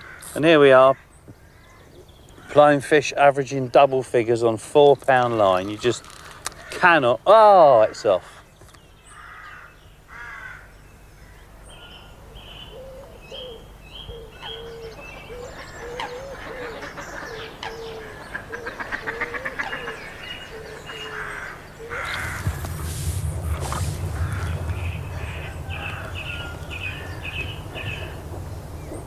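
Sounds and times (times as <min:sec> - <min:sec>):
bird chirps: 0:10.8 - 0:29.0
bird low repeated notes: 0:17.5 - 0:29.0
bird rattling call: 0:21.0 - 0:29.0
low rumble: 0:21.9 - 0:29.0.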